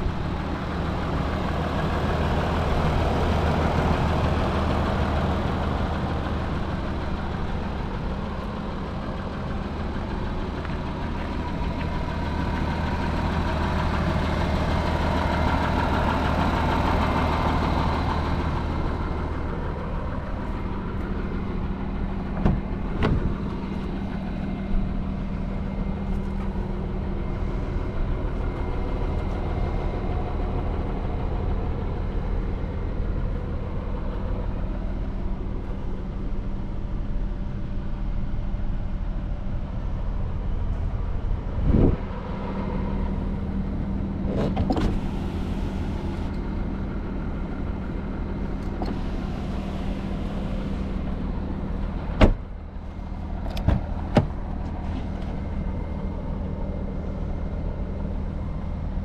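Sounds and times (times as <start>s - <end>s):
diesel engine idling: 0.0s - 59.0s
short thump: 22.4s - 23.3s, 52.2s - 52.4s, 53.6s - 54.4s.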